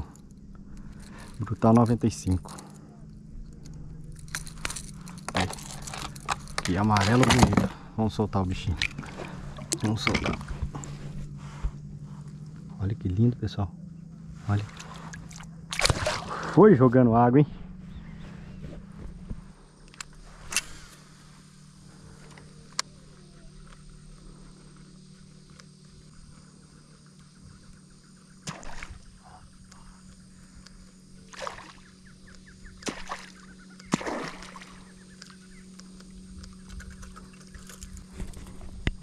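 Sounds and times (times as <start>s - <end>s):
steady low hum: 0.0s - 39.0s
fish splashing on water: 14.7s - 16.4s, 28.4s - 29.1s, 31.3s - 31.9s, 32.8s - 34.9s.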